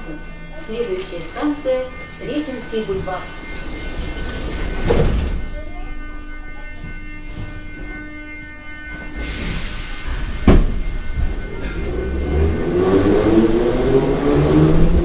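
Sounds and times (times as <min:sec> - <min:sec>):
train rumble: 0:00.0 - 0:15.0
loud sharp thump: 0:10.5 - 0:10.8.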